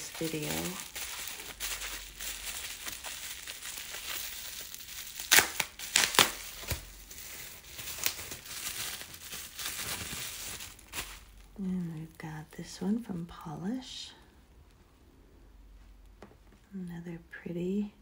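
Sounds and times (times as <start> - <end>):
packaging crinkling and rustling: 0.0 - 13.4.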